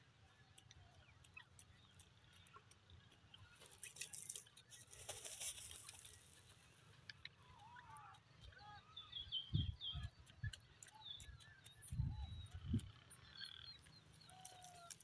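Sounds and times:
scuffling in dirt: 0:03.0 - 0:06.8, 0:13.8 - 0:15.0
bird scratching in dry soil: 0:03.6 - 0:06.6, 0:14.3 - 0:15.0.

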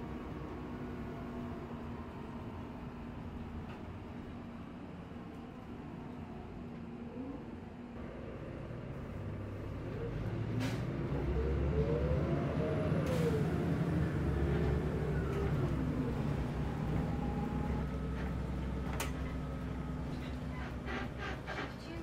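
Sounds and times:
bus engine drone: 0:00.0 - 0:22.0.

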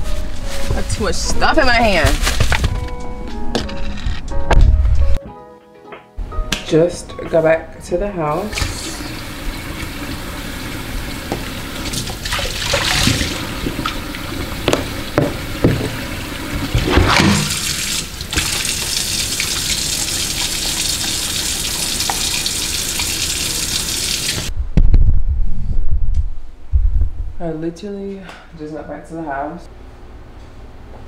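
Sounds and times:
tap running into sink: 0:11.1 - 0:24.5.

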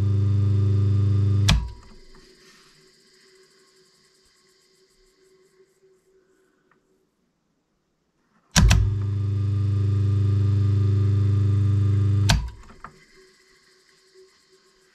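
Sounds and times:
electric motor mains hum: 0:00.0 - 0:04.9, 0:08.6 - 0:14.9
switch click: 0:01.4 - 0:02.0, 0:08.6 - 0:09.1, 0:12.2 - 0:12.9.

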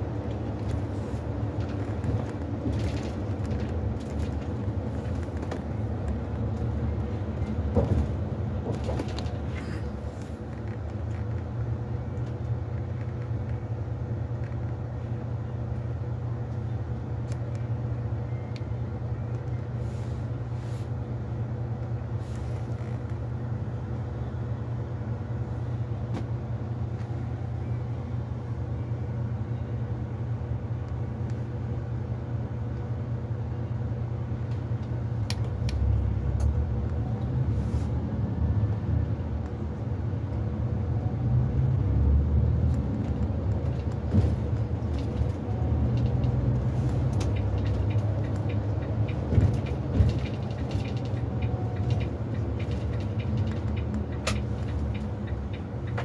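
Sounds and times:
engine hum inside coach cabin: 0:00.0 - 0:56.0
knocks and rattles: 0:47.1 - 0:56.0.

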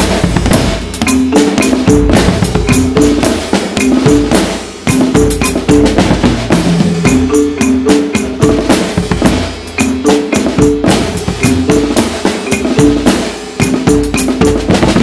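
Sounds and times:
bass drum: 0:00.0 - 0:15.0
drum kit: 0:00.0 - 0:15.0
marimba figures: 0:00.0 - 0:15.0
snare drums: 0:00.0 - 0:15.0.

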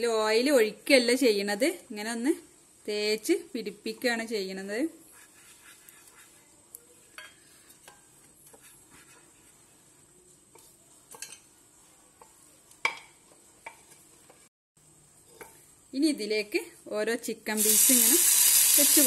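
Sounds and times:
pastry brush brushing a pan: 0:05.0 - 0:12.6.

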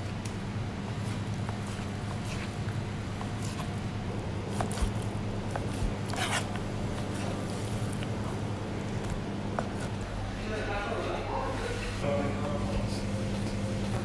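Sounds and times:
steady low hum: 0:00.0 - 0:14.0
knife slicing raw chicken: 0:04.5 - 0:06.6.

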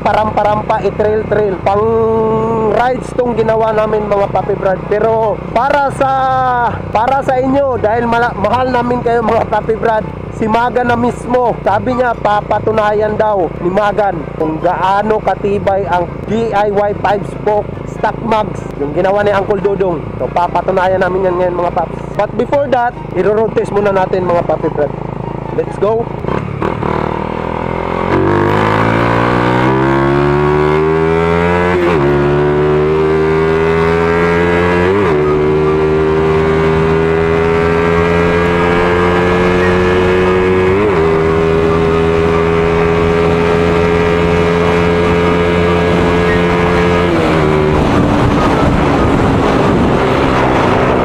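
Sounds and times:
motorcycle engine accelerating: 0:00.0 - 0:51.0.

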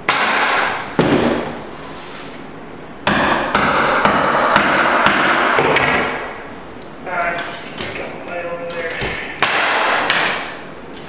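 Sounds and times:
hammer striking chisel: 0:03.1 - 0:06.1.

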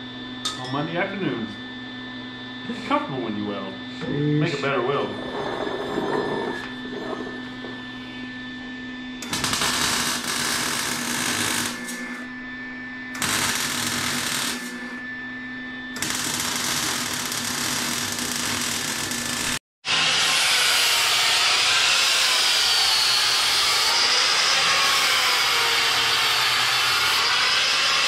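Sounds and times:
angle grinder whining on steel: 0:04.0 - 0:12.4, 0:13.0 - 0:28.0
welder crackling: 0:09.2 - 0:12.2, 0:13.2 - 0:14.9, 0:16.0 - 0:19.6, 0:20.3 - 0:28.0.

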